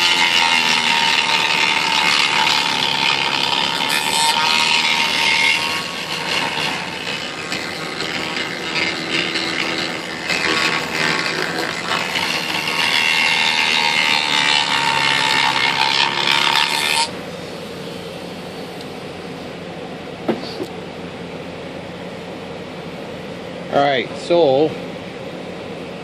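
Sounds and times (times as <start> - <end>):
rotary tool grinding wood: 0.0 - 17.2.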